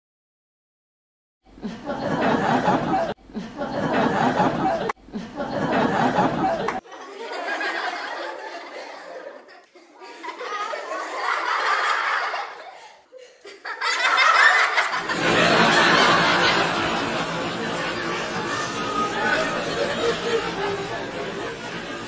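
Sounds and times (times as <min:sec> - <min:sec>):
audience laughter: 0:01.6 - 0:22.0
crowd chatter: 0:03.7 - 0:06.8, 0:15.0 - 0:22.0.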